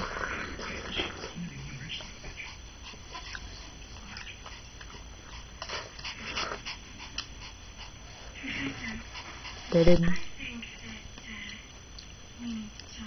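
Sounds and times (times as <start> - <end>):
dog breathing: 0.0 - 10.0.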